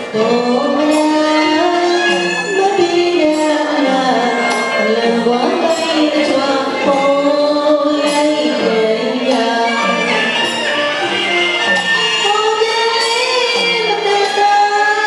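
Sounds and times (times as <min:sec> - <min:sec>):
woman singing: 0:00.0 - 0:10.6, 0:11.9 - 0:15.0
instrumental accompaniment: 0:00.0 - 0:15.0.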